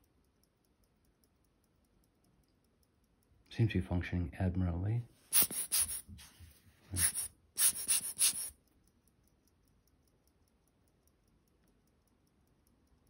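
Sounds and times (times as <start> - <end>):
pocket watch ticking: 0.0 - 3.8, 7.0 - 13.0
scratchy handling sounds: 5.3 - 8.5.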